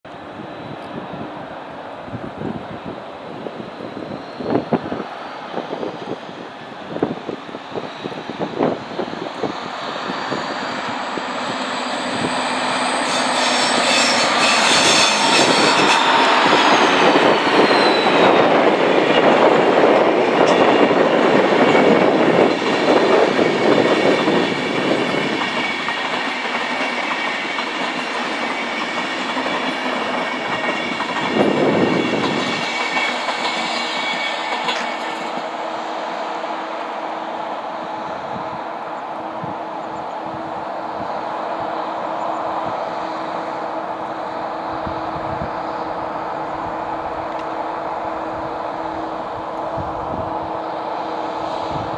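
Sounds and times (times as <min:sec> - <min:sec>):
diesel locomotive engines: 0:00.1 - 0:51.9
train wheels clickety-clack: 0:08.1 - 0:35.7.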